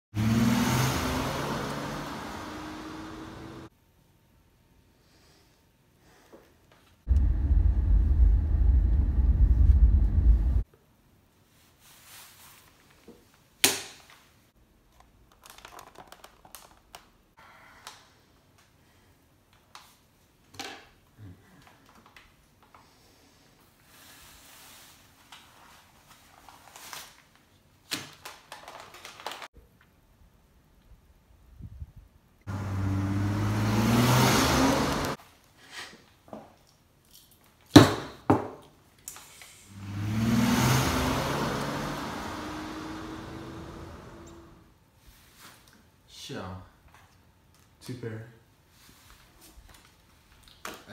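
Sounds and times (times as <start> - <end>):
car engine accelerating: 0.2 - 3.7, 7.1 - 10.6, 32.5 - 35.2, 39.7 - 44.7
small clicks and rustles: 14.9 - 17.2, 25.0 - 30.0, 35.2 - 37.7, 48.9 - 50.9.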